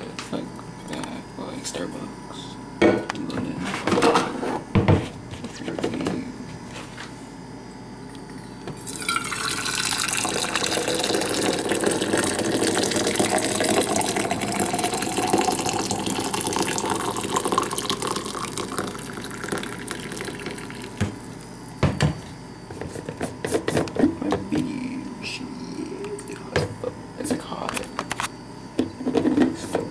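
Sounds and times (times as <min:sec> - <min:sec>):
coffee pouring into a metal mug: 0:08.8 - 0:21.0
knocks: 0:21.8 - 0:22.2.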